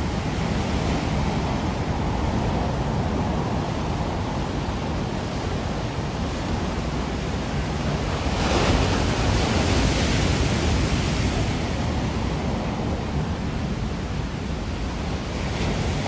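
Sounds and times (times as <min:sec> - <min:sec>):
waves breaking on rocky shore: 0:00.0 - 0:16.0.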